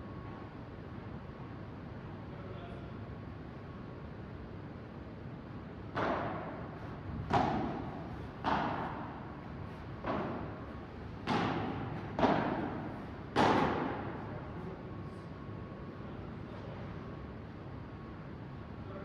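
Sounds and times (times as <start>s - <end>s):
padel ball hits echoing in hall: 5.9s - 9.2s, 11.2s - 14.2s.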